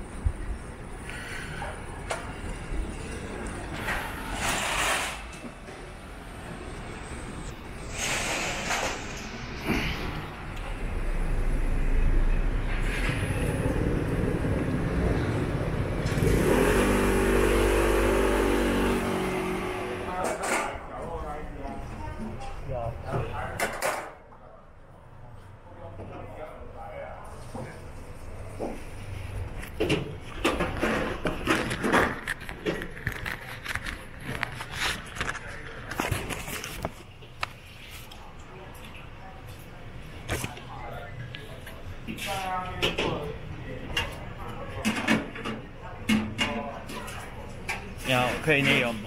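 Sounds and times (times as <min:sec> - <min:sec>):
street traffic noise: 0:00.0 - 0:49.0
motor scooter engine revving: 0:15.7 - 0:20.2
clicks and clatter: 0:29.6 - 0:37.6.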